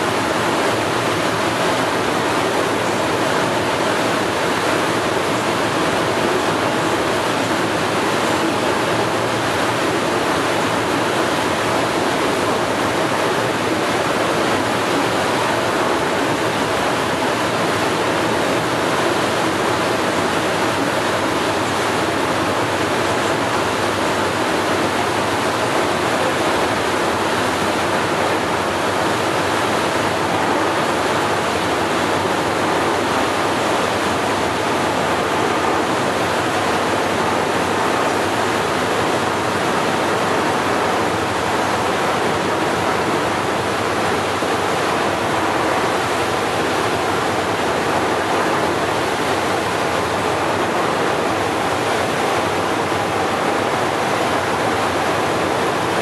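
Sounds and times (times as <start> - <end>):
water rushing and spray: 0.0 - 56.0.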